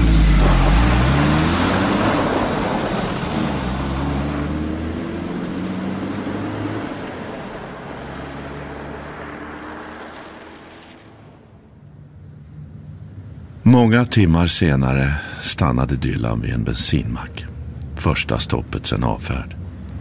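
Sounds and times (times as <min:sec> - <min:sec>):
car engine accelerating: 0:00.0 - 0:13.8.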